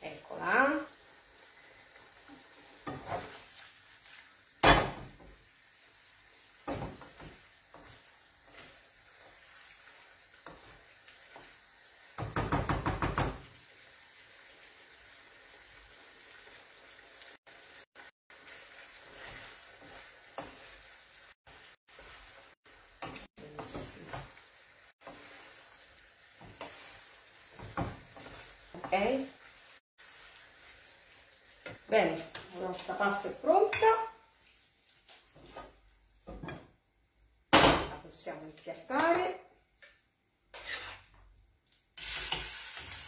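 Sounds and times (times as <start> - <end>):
wooden spoon scraping frying pan: 2.0 - 4.4, 6.3 - 12.4, 18.0 - 35.8, 40.5 - 41.2.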